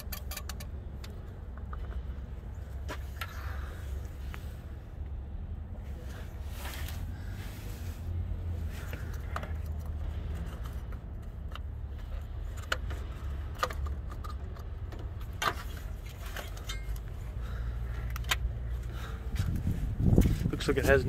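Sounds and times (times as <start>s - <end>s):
metallic clicks and rattles: 0.0s - 2.0s
low steady rumble: 0.0s - 21.0s.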